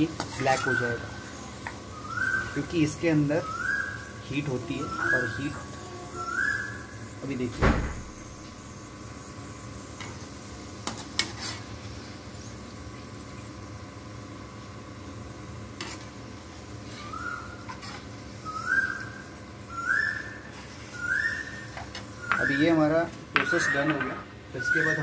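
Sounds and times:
rising whistled call: 1.9 - 2.7, 3.3 - 4.1, 4.8 - 7.0, 17.0 - 17.6, 18.4 - 22.8, 23.4 - 24.0, 24.6 - 25.0.

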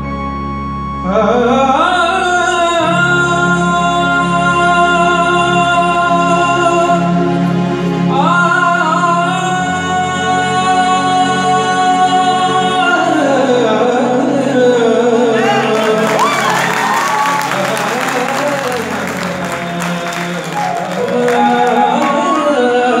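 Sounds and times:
applause: 15.4 - 22.7.

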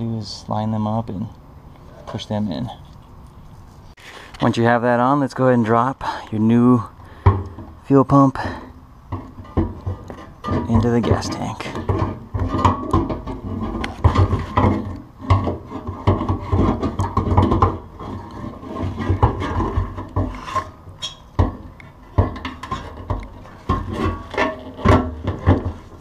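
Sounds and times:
metal scraping and rubbing: 8.5 - 26.0.

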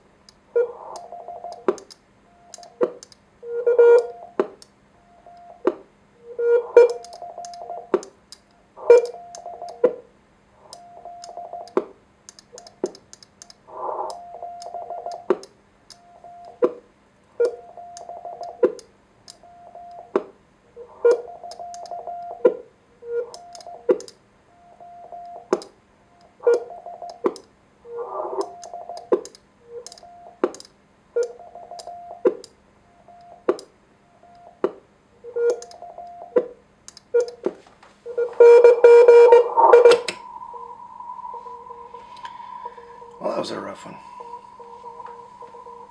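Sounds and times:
morse code tones: 3.4 - 4.4, 23.0 - 23.8, 35.2 - 36.5, 38.1 - 45.9.

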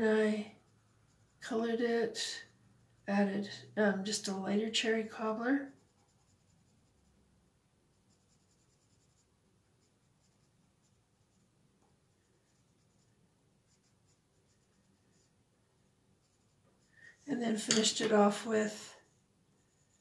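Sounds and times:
pencil scratching on card: 0.4 - 3.5, 4.8 - 7.2, 7.9 - 11.5, 12.1 - 15.4, 16.2 - 17.2, 19.0 - 20.0.

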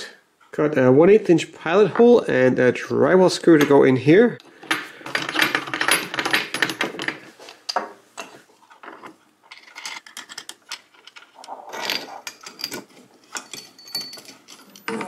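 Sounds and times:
metal parts clinking: 4.6 - 7.8, 8.7 - 15.0.

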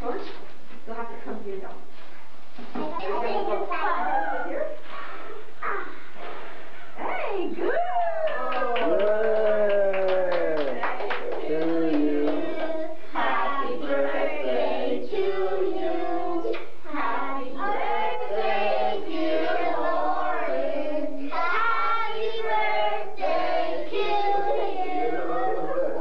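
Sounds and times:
children singing together: 11.8 - 26.0.

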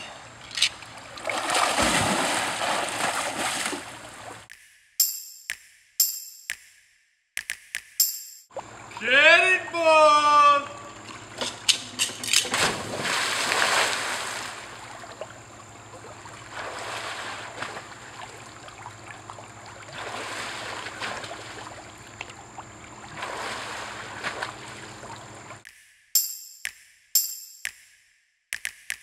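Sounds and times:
water lapping against pool sides: 0.0 - 4.5, 10.6 - 25.6
diver splashing into pool: 0.9 - 4.4, 12.4 - 15.2, 16.2 - 18.6, 19.8 - 21.9, 23.1 - 25.4.

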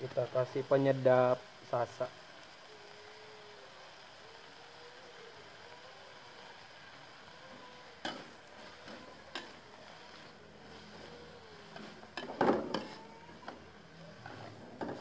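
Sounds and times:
faint steady hiss: 0.0 - 15.0
metal spatula scraping a wok: 8.0 - 15.0.

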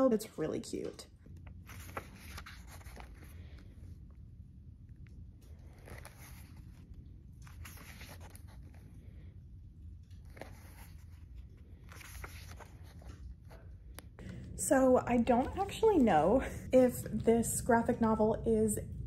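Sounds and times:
low room hum: 0.0 - 19.0
pages being turned: 1.4 - 3.7, 5.5 - 9.0, 10.1 - 13.6.

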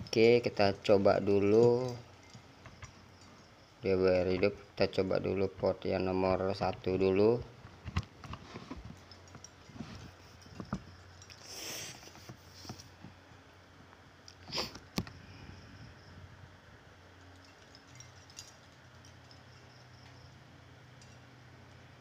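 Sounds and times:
faint steady low hum: 0.0 - 22.0
rustling: 7.5 - 13.2.

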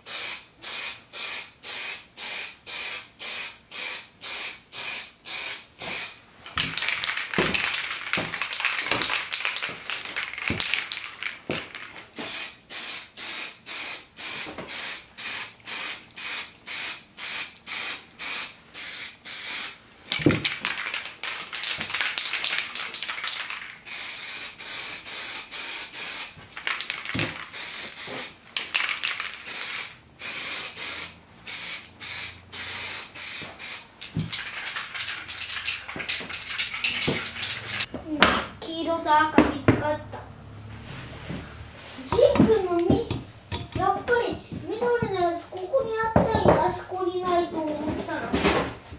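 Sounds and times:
aerosol spray can hissing: 0.1 - 37.9.

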